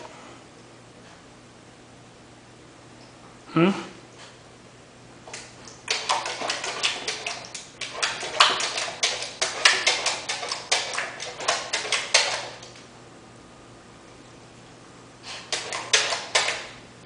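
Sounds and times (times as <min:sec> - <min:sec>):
paw slapping water in bowl: 0:05.2 - 0:12.9, 0:15.3 - 0:16.8.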